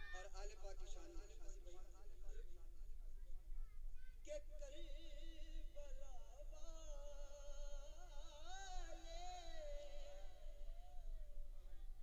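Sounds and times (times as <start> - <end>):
man singing unaccompanied: 4.2 - 11.4.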